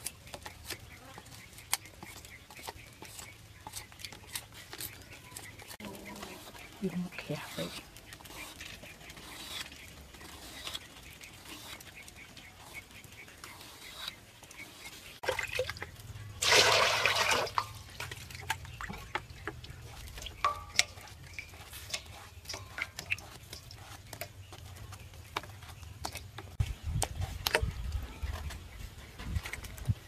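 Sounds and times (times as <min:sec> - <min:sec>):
pieces plopping into water: 0:16.4 - 0:17.8.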